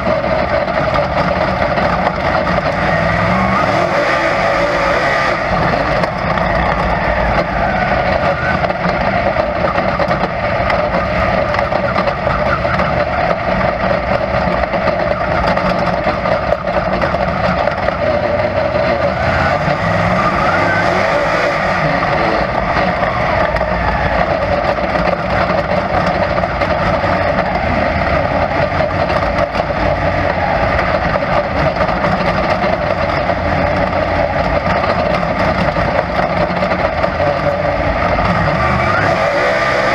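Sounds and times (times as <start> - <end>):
race car engine running: 0.0 - 39.9.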